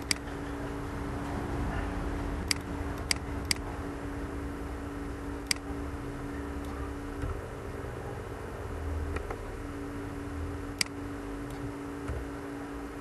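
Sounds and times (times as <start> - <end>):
computer mouse clicks: 0.0 - 0.3, 2.4 - 3.6, 5.4 - 5.7, 10.8 - 11.7
low electrical hum: 0.0 - 13.0.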